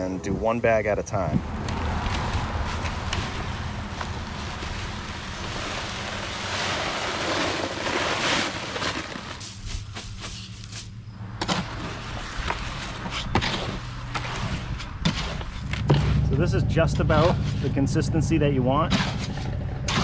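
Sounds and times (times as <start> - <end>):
dry concrete mix pouring: 1.7 - 10.2.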